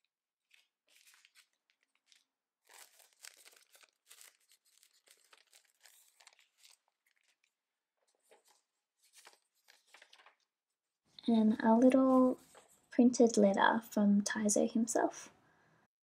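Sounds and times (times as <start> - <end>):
paper and plastic sleeve crinkling: 0.0 - 10.5.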